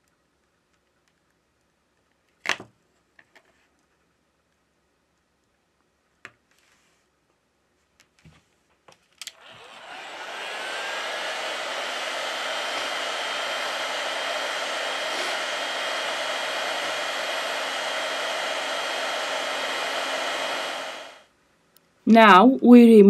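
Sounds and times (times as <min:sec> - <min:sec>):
faint high whine: 0:09.4 - 0:21.2
heat gun blowing air: 0:09.4 - 0:21.2.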